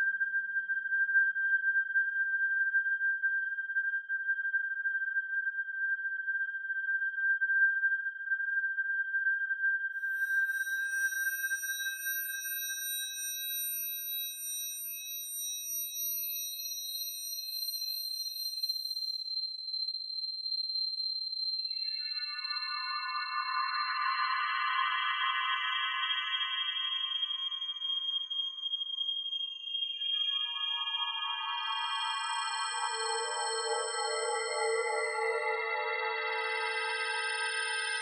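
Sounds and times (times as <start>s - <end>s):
steady high sine tone: 10.0s - 38.0s.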